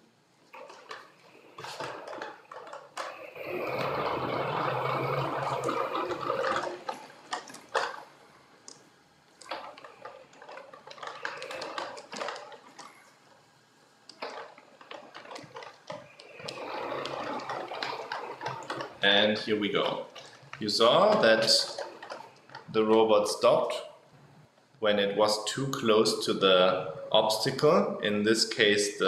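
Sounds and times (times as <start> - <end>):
robot motors whirring: 3.0 - 7.2.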